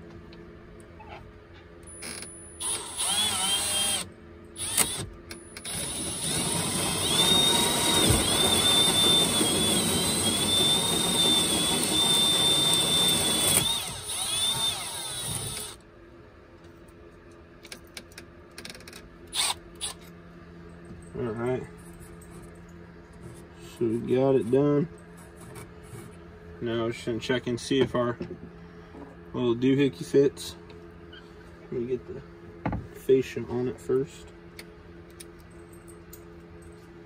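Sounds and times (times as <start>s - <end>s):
drill with hole saw whining: 1.9s - 15.8s, 19.3s - 20.0s.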